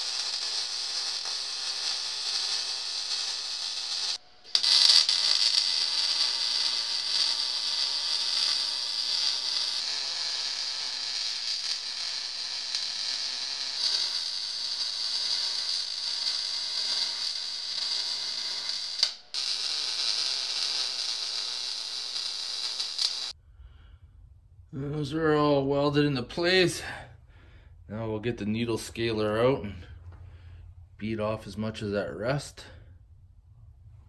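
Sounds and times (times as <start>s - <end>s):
welding arc hissing: 0.0s - 23.4s.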